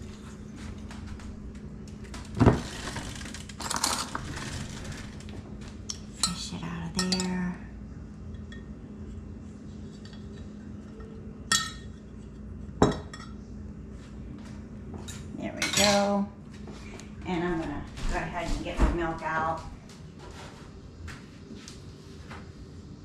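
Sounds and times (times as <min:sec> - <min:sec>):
glass cup clinking: 0:07.0 - 0:07.4, 0:10.9 - 0:12.0, 0:12.8 - 0:13.4.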